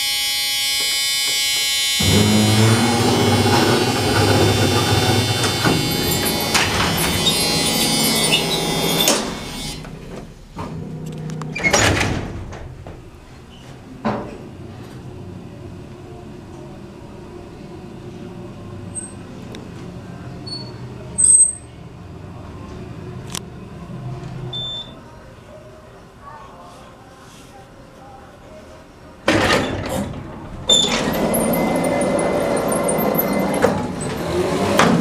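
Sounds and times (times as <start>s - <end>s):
elevator doors rattling shut: 2.0s - 10.1s, 10.7s - 13.1s, 29.3s - 35.0s
elevator low hum: 2.0s - 11.8s, 12.7s - 25.0s, 29.9s - 35.0s.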